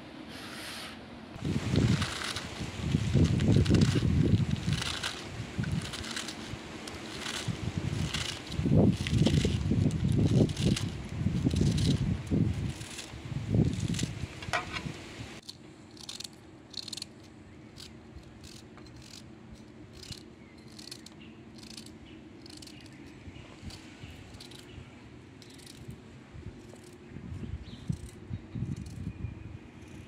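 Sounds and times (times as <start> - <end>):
steady low hum: 1.0 - 30.0
knife shredding lettuce: 1.5 - 14.1.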